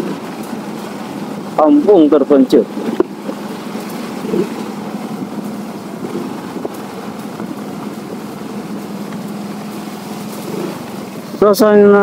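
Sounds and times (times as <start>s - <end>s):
motorcycle engine running: 0.0s - 12.0s
steady rushing noise: 0.0s - 12.0s.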